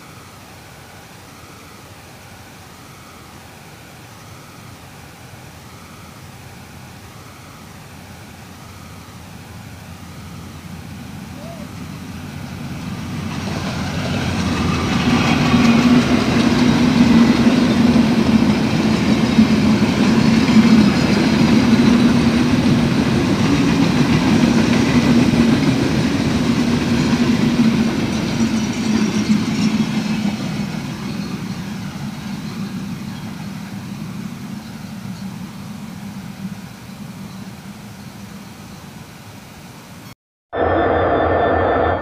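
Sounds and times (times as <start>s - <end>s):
train wheels rumbling on rails: 9.5s - 38.4s.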